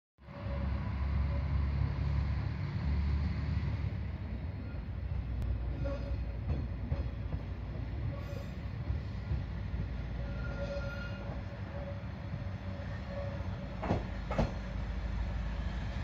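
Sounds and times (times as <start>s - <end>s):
diesel railcar engine rumbling: 0.2s - 16.0s
wheel squeals: 10.2s - 12.1s
train wheel clicks: 13.8s - 14.6s.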